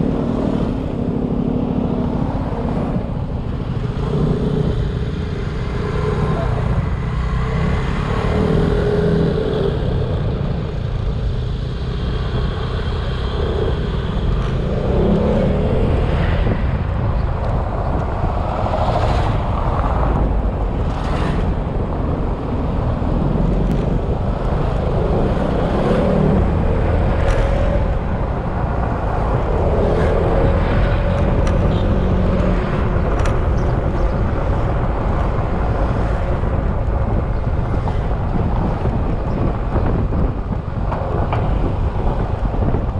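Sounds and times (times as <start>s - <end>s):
wind rumble on microphone: 0.0s - 42.9s.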